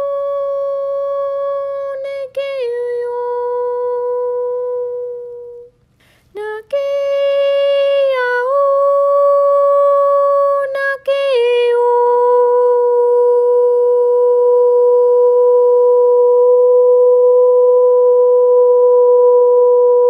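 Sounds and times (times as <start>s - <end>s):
person humming long notes: 0.0s - 5.7s, 11.4s - 20.0s.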